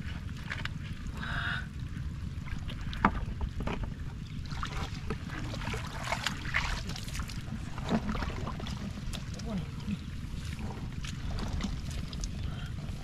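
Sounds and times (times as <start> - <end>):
wind rumbling on microphone: 0.0 - 13.0
feet splashing in muddy water: 4.4 - 13.0.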